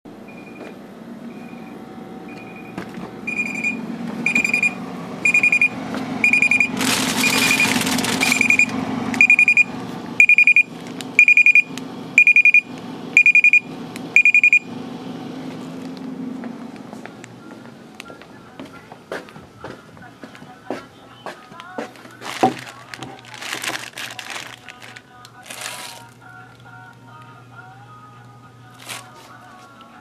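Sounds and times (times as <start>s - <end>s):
low steady hum: 0.1s - 30.0s
short high beeps: 3.3s - 12.6s, 13.2s - 13.6s, 14.2s - 14.7s
plastic bag crinkling: 6.4s - 8.6s, 21.6s - 26.6s, 28.7s - 29.7s.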